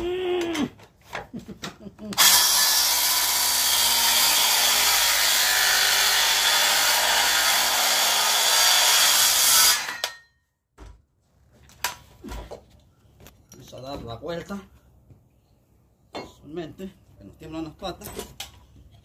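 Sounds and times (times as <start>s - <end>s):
circular saw cutting wood: 2.2s - 10.2s.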